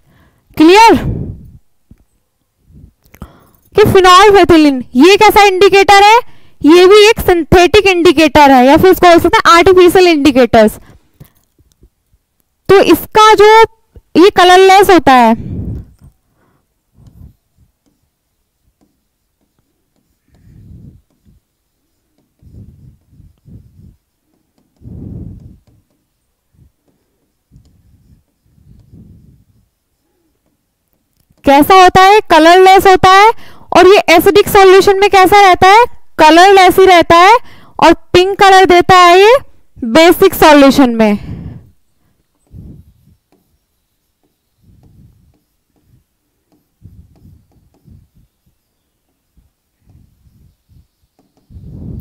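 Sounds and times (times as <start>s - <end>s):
chalk scraping on blackboard: 17.0s - 26.2s, 42.4s - 48.2s.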